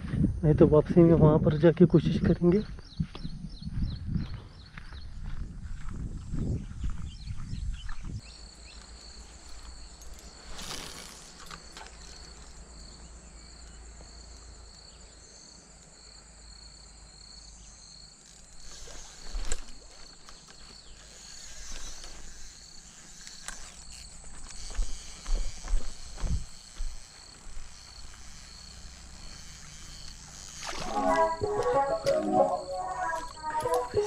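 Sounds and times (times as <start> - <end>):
insects chirping: 0.0 - 34.0
footsteps on dirt and stones: 2.7 - 12.4, 23.1 - 28.9, 30.7 - 34.0.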